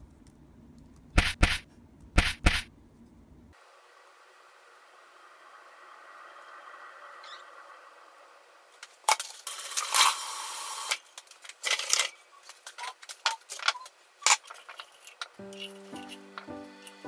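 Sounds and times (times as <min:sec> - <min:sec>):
rustling or scraping: 0:11.2 - 0:17.0.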